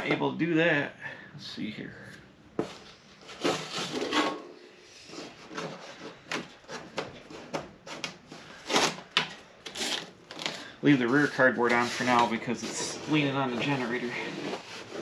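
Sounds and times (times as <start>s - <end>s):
cardboard scraping and rustling: 2.6s - 4.4s, 9.7s - 15.0s
tape being peeled: 5.1s - 10.7s.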